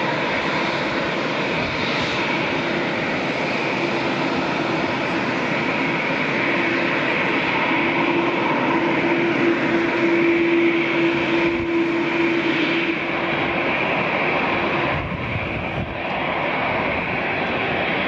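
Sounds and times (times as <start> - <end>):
broad rushing noise: 0.0 - 18.0
jet engine whine: 0.0 - 18.0.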